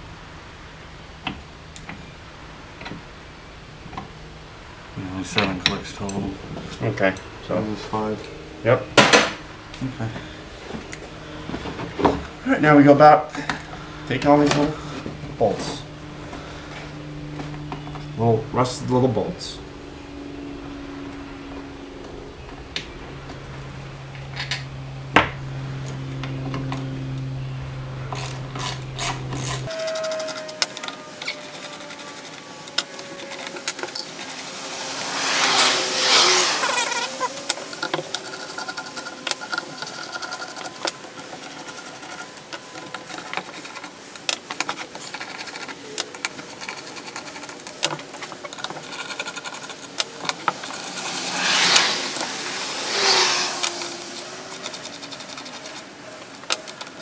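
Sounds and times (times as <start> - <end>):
low hum: 0.0 - 57.0
grating burst: 28.2 - 57.0.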